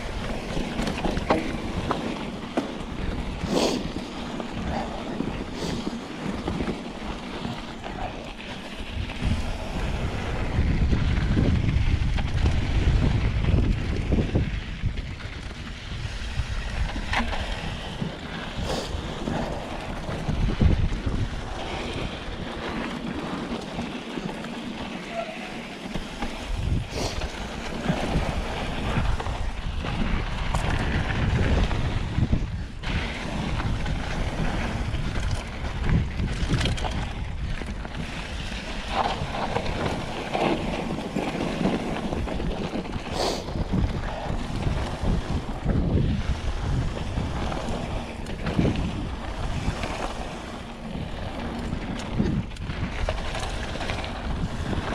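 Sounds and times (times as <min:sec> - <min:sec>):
bike knocks and rattles: 0:00.0 - 0:03.4
wind buffeting microphone: 0:00.0 - 0:24.2, 0:25.9 - 0:54.9.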